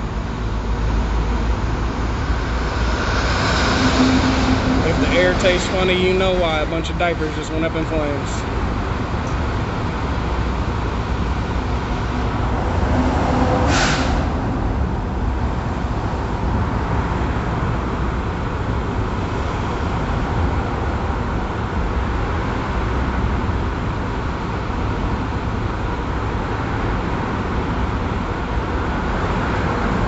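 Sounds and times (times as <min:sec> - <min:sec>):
vehicle engines idling: 0:00.0 - 0:12.8
short hiss: 0:13.7 - 0:14.2.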